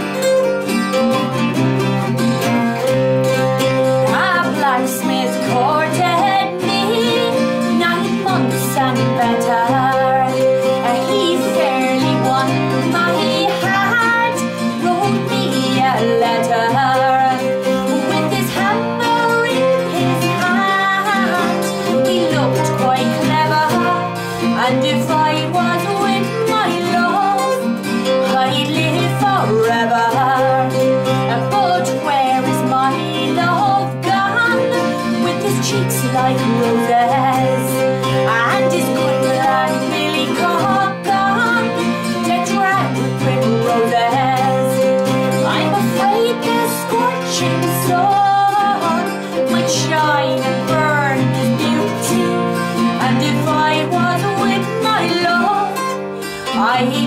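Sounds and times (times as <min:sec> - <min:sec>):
acoustic guitars: 0:00.0 - 0:57.0
woman singing folk song: 0:00.0 - 0:57.0.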